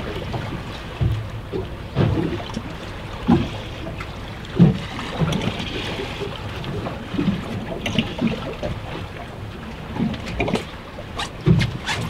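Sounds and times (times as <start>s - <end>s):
waves thudding against boat hull: 0.0s - 12.0s
wind and sea rushing: 0.0s - 12.0s.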